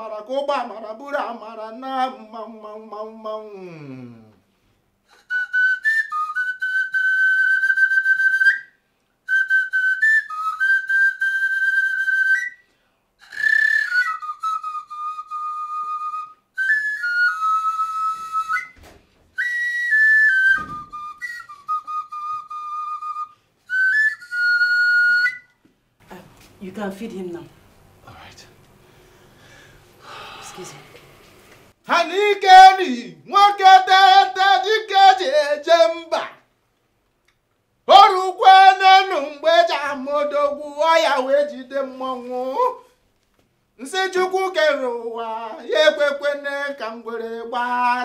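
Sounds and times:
high whistle-like wind melody: 0:13.3 - 0:18.8, 0:19.4 - 0:25.6.

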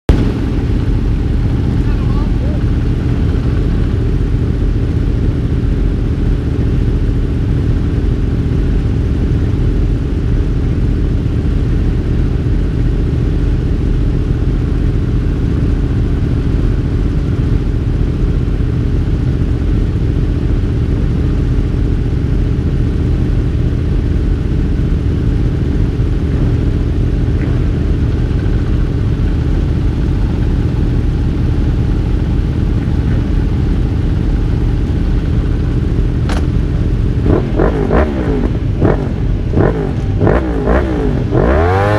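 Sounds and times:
motorcycle engines idling: 0:00.1 - 0:41.9.

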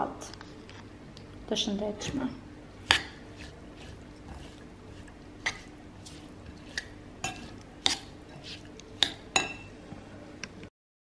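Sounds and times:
spoon stirring salad in bowl: 0:02.7 - 0:09.8
spoon clinking against bowl: 0:05.4 - 0:09.7.

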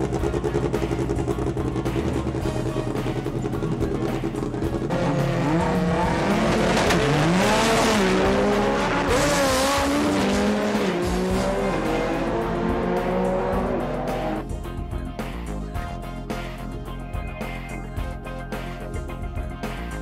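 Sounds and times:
background music: 0:00.0 - 0:20.0
car engine revving hard: 0:04.9 - 0:14.4.

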